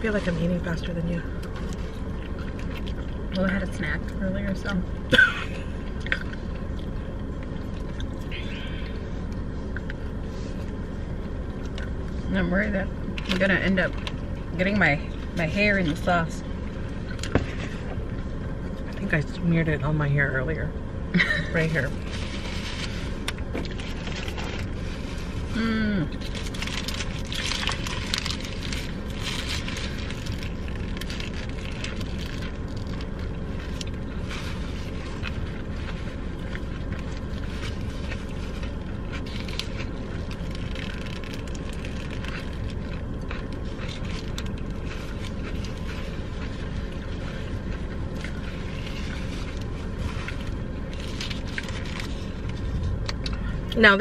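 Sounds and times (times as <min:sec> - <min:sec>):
steady low rumble: 0:00.0 - 0:54.0
paper wrappers crinkling: 0:21.8 - 0:25.4, 0:26.2 - 0:53.3.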